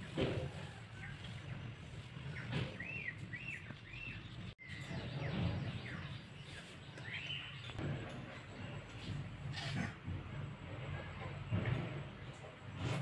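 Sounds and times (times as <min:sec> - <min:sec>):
bird chirping: 0:02.2 - 0:07.8.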